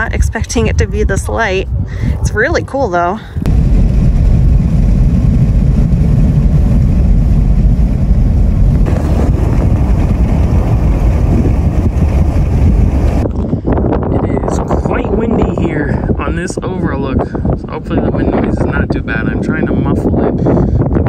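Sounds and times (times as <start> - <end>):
wind buffeting microphone: 0.0 - 21.0
car rumbling on highway: 1.7 - 15.4.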